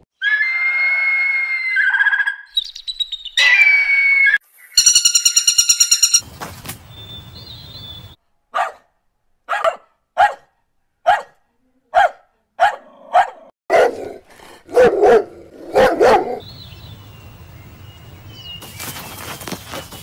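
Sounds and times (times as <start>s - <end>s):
puppy barking: 8.5s - 8.9s, 9.5s - 16.4s.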